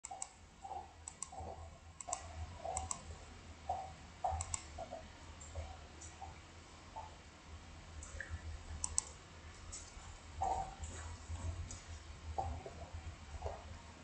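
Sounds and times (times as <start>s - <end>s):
light irregular clicks: 0.0s - 3.1s, 3.7s - 4.8s, 8.0s - 11.0s.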